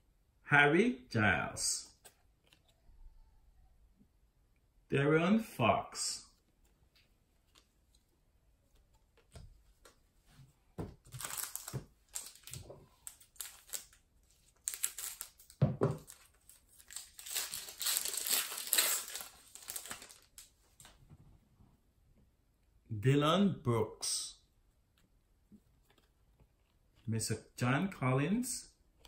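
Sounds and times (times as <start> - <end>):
foil wrapper crinkling: 11.1 - 20.5
scissors cutting wrapper: 16.8 - 20.3.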